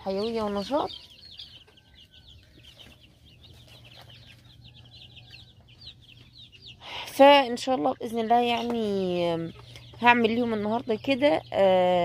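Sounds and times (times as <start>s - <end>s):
chicks peeping: 0.0s - 12.0s.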